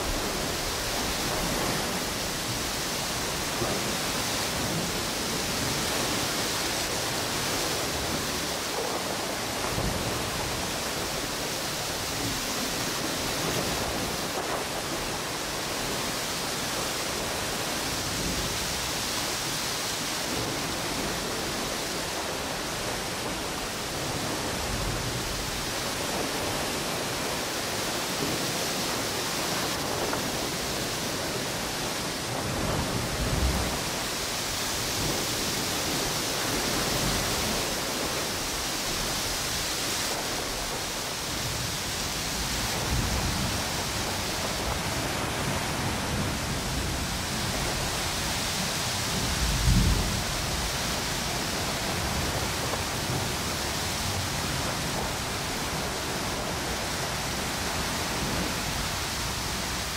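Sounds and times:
low wind gusts: 0:00.0 - 0:59.9
ocean surf: 0:00.0 - 0:59.9
storm wind: 0:00.0 - 0:59.9.

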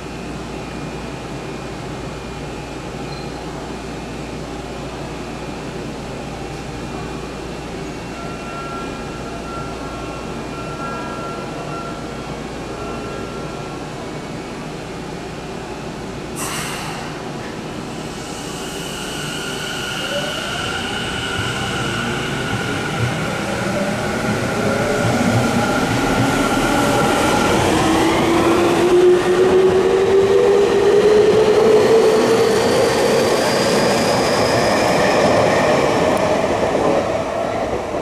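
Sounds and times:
electric train hum and rumble: 0:00.0 - 0:38.0
short sharp hiss: 0:16.4 - 0:17.2.

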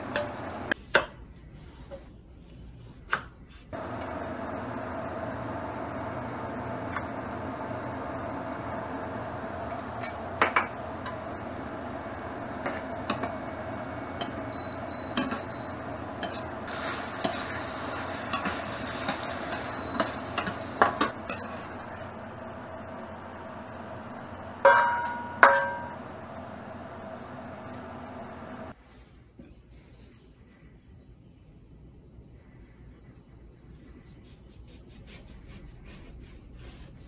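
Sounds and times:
steady hum: 0:00.0 - 0:37.0
metal utensil scraping wok: 0:09.8 - 0:10.3, 0:16.2 - 0:21.9.

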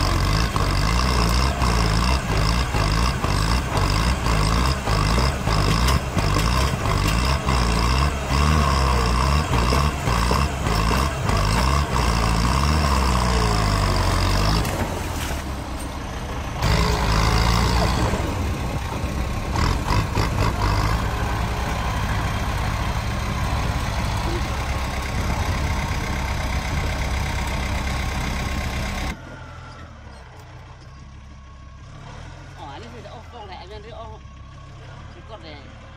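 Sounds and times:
tractor diesel engine under load: 0:00.0 - 0:35.9.

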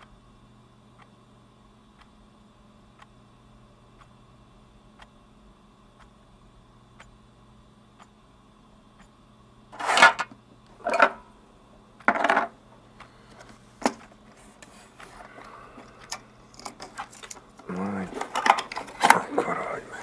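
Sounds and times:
plastic scraping on tabletop: 0:09.8 - 0:11.2.

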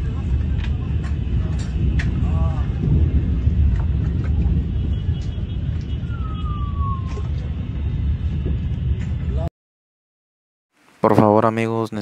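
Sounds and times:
low outdoor rumble: 0:00.0 - 0:09.5.

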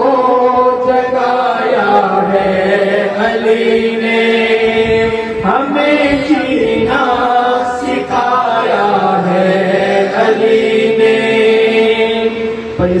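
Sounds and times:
man singing into a microphone: 0:00.0 - 0:09.7.

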